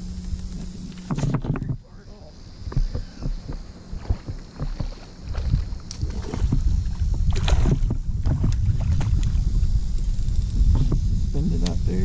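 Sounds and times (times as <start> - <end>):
wind rumbling on microphone: 0.0 - 12.0
fish splashing at water surface: 2.8 - 9.6.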